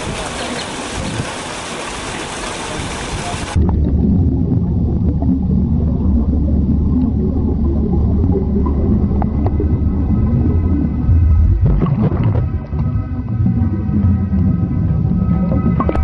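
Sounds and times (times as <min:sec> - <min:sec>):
underwater hiss: 0:00.0 - 0:03.6
low rumble of water on microphone: 0:00.0 - 0:16.0.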